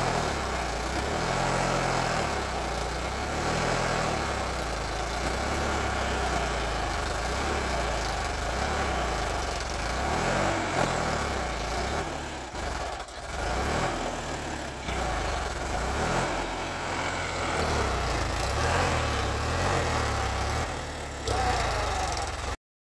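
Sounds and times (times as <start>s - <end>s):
tractor diesel engine running: 0.0s - 22.6s.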